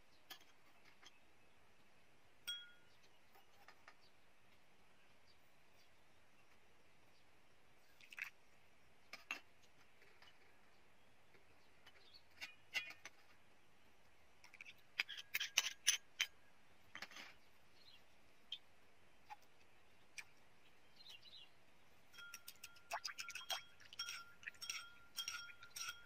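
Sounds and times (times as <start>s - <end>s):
spoon clinking against glass bowl: 2.5s - 2.8s, 22.2s - 26.0s.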